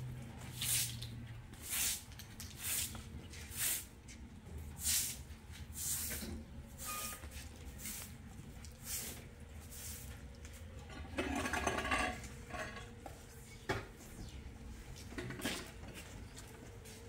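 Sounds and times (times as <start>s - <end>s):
clatter of objects being handled: 10.8s - 16.7s.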